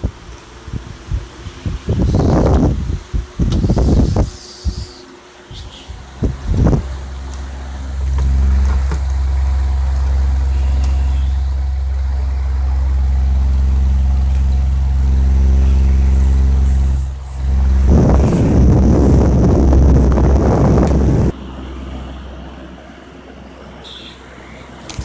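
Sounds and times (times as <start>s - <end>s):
air buffeting the microphone: 0.0s - 21.4s
electric motor humming: 6.2s - 21.4s.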